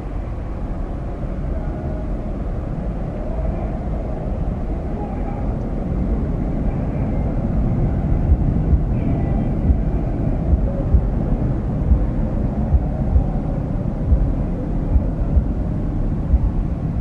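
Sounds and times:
distant jet engine rumble: 0.0s - 17.0s
wind thumps on microphone: 7.9s - 17.0s.

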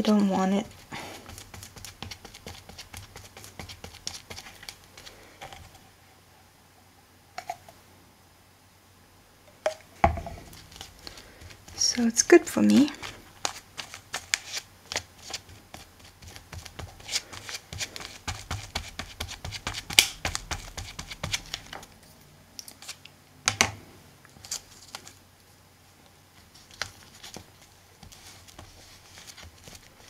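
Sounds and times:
hands handling paper: 0.0s - 5.8s, 10.4s - 21.9s, 24.3s - 25.2s, 26.4s - 30.0s
glue brush scratching and dabbing: 0.1s - 5.8s, 10.4s - 21.6s.

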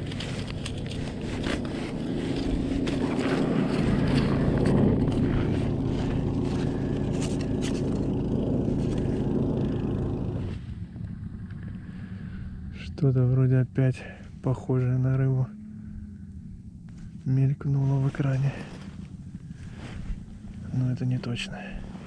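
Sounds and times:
clicks and rustles: 0.0s - 8.1s
vehicle engine running: 0.0s - 22.0s.

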